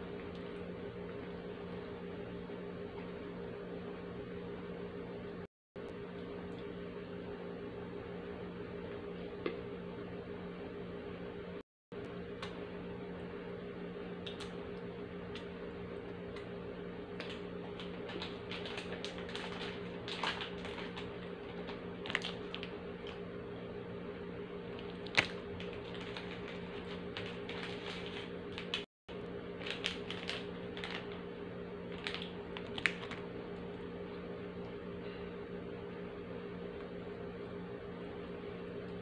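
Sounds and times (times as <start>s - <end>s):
low hum: 0.0s - 39.0s
plastic wrapper crackling: 17.2s - 23.2s, 24.8s - 28.8s, 29.6s - 31.2s, 31.9s - 33.3s.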